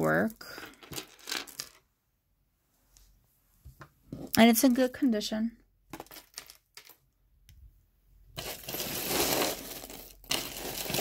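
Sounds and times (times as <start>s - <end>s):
chains and beads rustling and clinking: 8.4s - 11.0s.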